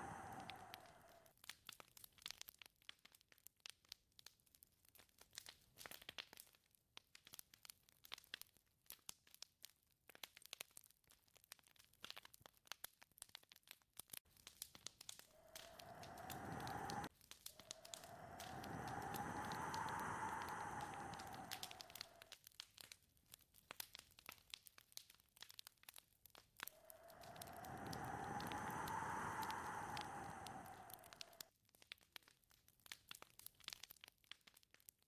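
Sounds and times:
whistling wind: 0.0 - 1.1, 15.4 - 22.2, 26.8 - 31.4
faint dry crackling: 14.3 - 22.4, 26.4 - 31.5.

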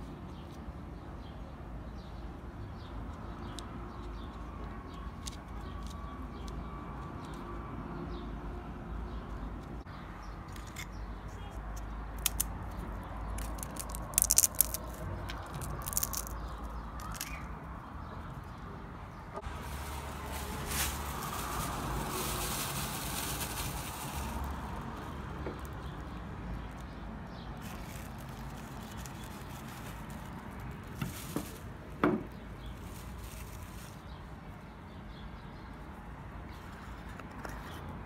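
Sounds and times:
chips and plastic bag rustling: 13.4 - 17.4, 19.4 - 26.8, 27.6 - 31.9, 32.6 - 34.0.

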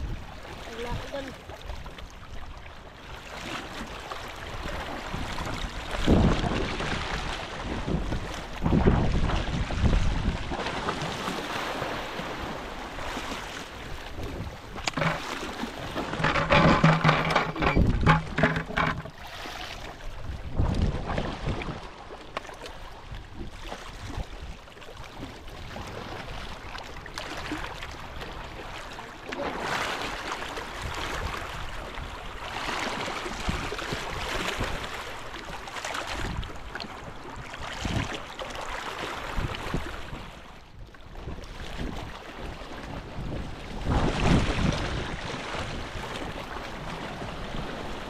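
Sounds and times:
water sloshing against boat: 0.0 - 48.0
wind buffeting microphone: 4.5 - 10.6, 20.0 - 21.8, 41.2 - 48.0.

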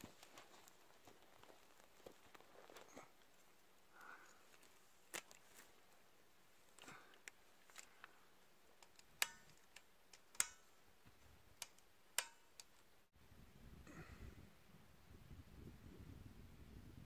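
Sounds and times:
metallic bipod clicks: 8.8 - 10.7, 11.6 - 12.8.

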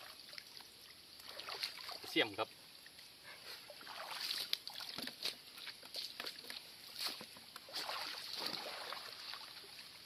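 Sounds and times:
boots splashing in muddy water: 3.8 - 9.9.

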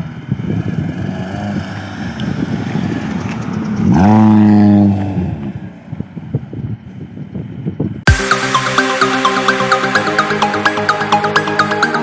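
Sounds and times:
car engines rumbling: 0.0 - 8.0
loud rising pitched sound: 8.1 - 12.0.

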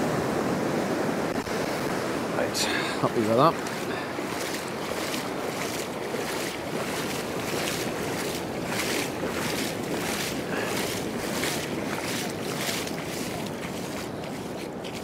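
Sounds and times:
surf washing up a beach: 0.0 - 15.0
wind on microphone: 3.1 - 15.0.

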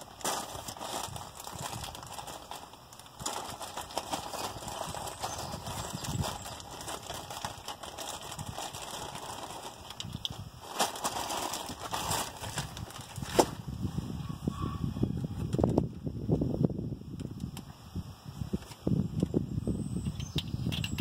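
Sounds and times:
rustling: 0.0 - 13.6
clicks and knocks of parts handled: 20.1 - 21.0.

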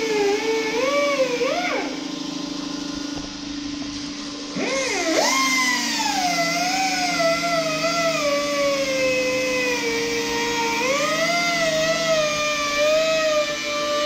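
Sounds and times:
grinder cutting metal: 4.5 - 14.0.

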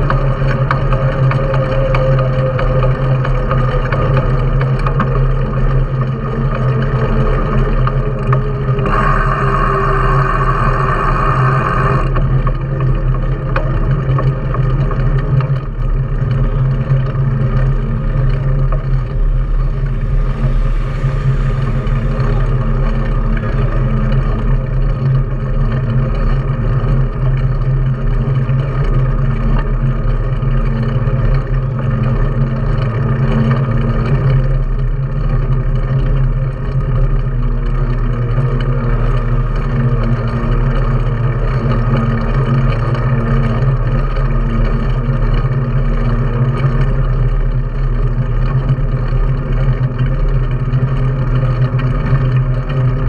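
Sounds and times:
bike tyre humming on road: 0.0 - 53.0
wind rushing over microphone: 15.6 - 27.2.

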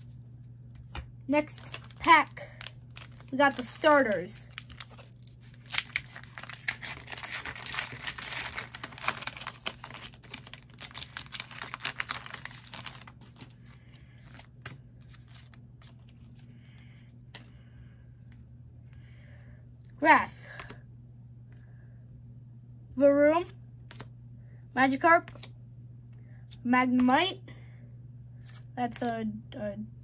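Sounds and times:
foil wrapper tearing and crinkling: 1.5 - 14.7.

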